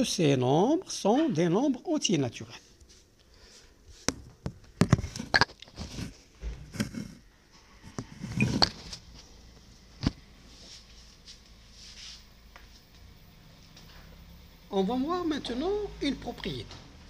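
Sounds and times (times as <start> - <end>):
phone handling noise: 4.1 - 6.1, 8.3 - 9.0.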